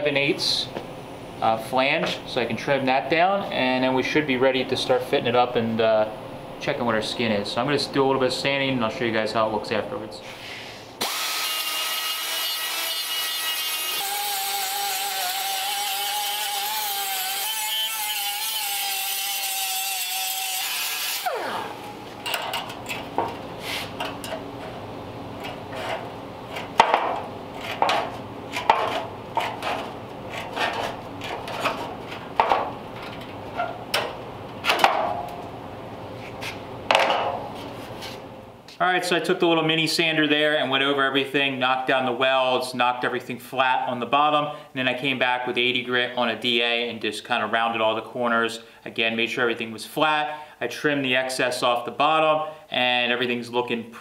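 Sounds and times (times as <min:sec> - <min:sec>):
air sander whining: 0:11.0 - 0:22.2.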